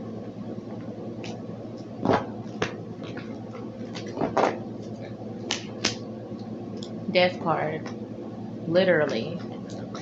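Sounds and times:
steady low hum: 0.0 - 10.0
sharp snaps and taps: 5.4 - 7.0.

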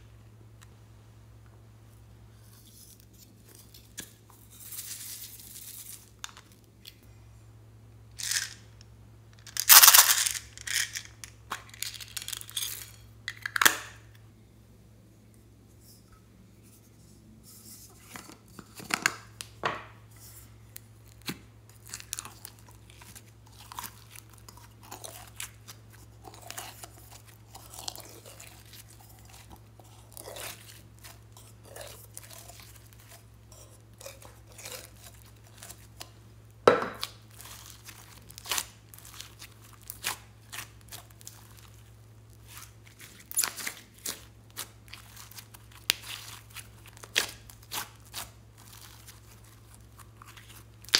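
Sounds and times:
slime crackling and popping: 37.0 - 50.9.

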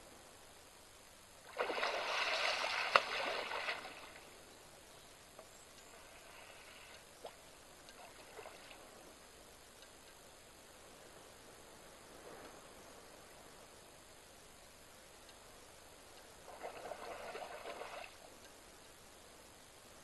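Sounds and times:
sharp water slap: 1.5 - 4.0
elephant splashing water: 1.5 - 4.3, 16.5 - 18.2.

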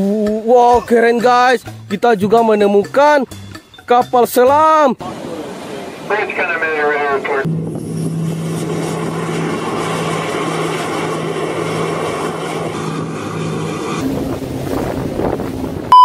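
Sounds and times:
boat engine hum: 2.7 - 16.0
wind and sea water rushing: 4.9 - 16.0.

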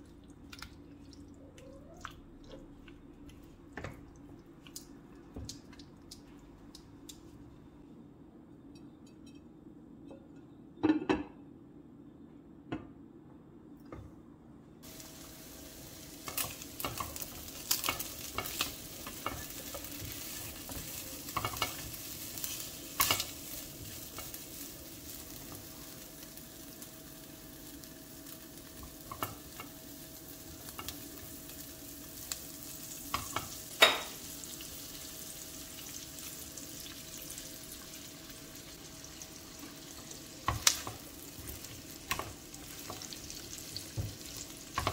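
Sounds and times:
meat sizzling in a pot: 14.8 - 44.9.

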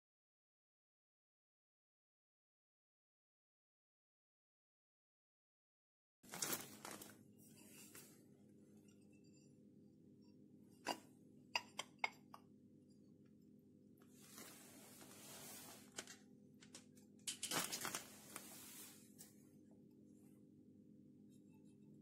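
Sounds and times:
faint steady hum: 6.3 - 22.0
soft rustle: 14.1 - 16.1, 17.7 - 19.4.

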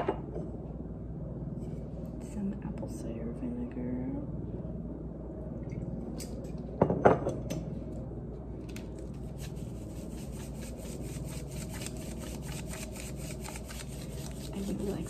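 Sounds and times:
bottle knocking on tiled counter: 6.8 - 7.3.

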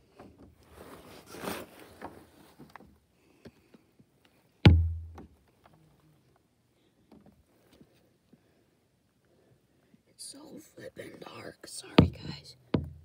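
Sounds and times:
shuffling and handling noise: 0.5 - 2.8
heavy thump with low boom: 4.7 - 5.2.

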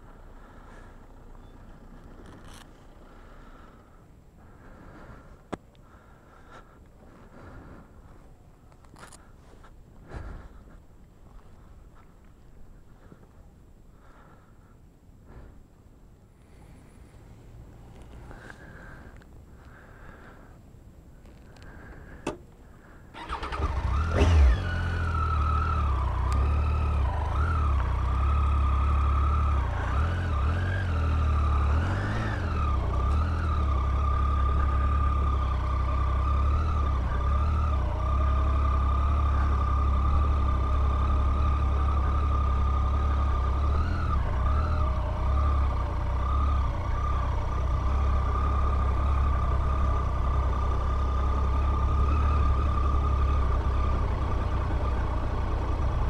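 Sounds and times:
motorcycle engine running: 21.2 - 56.0.

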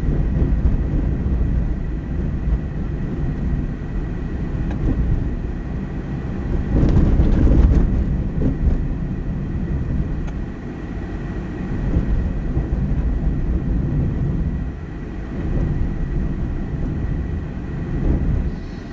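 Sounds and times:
car cabin road and engine noise: 0.0 - 18.9.

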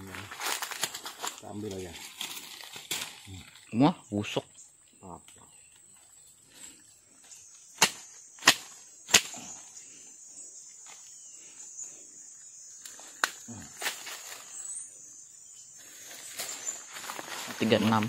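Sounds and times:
dry leaf litter crackling: 0.0 - 3.8, 13.0 - 14.7, 15.8 - 18.0
sharp snaps: 7.8 - 9.5, 12.8 - 14.1.

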